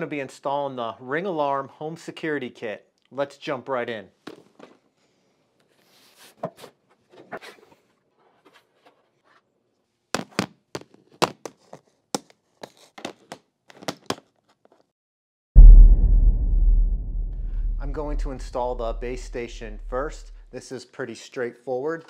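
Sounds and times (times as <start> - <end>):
loud low rumble: 15.6 - 20.4.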